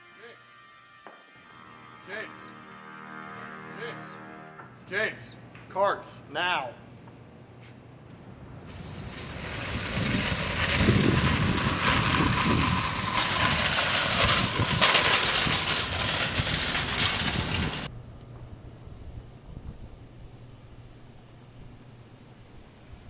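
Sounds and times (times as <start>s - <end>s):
wire shopping cart rattling: 8.7s - 17.9s.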